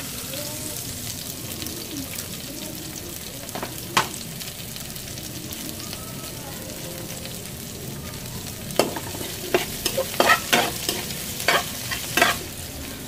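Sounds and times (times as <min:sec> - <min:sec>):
garlic and onion sizzling in oil: 0:00.0 - 0:13.0
metal spoon knocking and scraping pan: 0:08.8 - 0:12.5.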